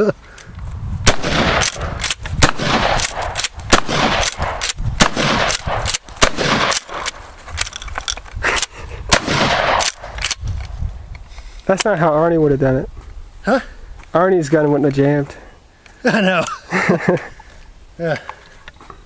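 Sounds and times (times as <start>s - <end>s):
loud gunshots: 1.0s - 7.1s, 9.1s - 10.1s.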